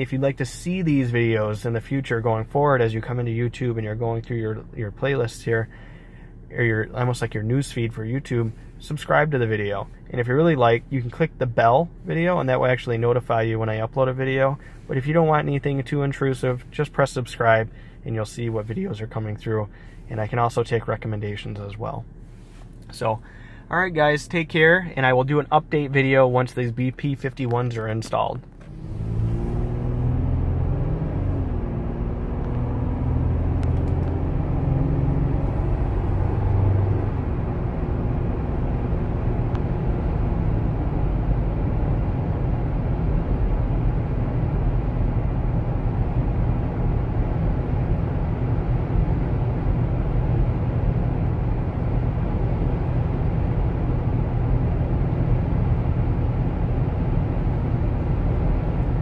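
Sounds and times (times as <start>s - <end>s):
road and tyre noise: 22.0s - 59.0s
car engine accelerating: 28.4s - 59.0s.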